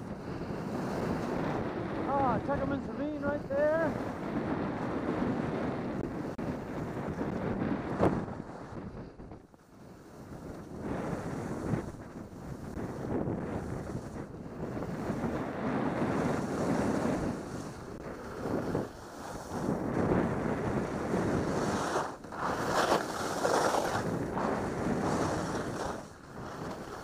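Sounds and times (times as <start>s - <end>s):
wind on microphone: 0.0s - 27.0s
skis scraping on snow: 0.2s - 27.0s.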